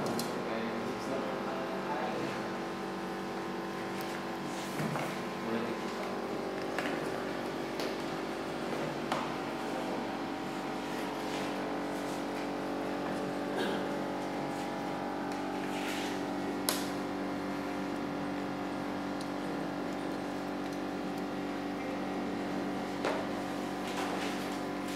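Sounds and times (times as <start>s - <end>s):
machine hum: 0.0s - 24.9s.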